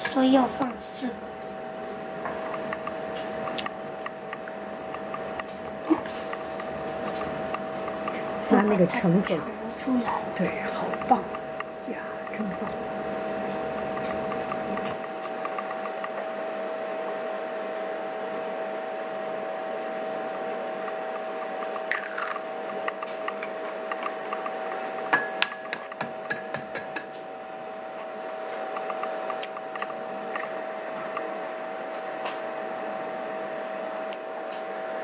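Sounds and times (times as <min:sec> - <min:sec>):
steady hum: 0:00.0 - 0:35.0
egg cracking on bowl rim: 0:21.5 - 0:27.1.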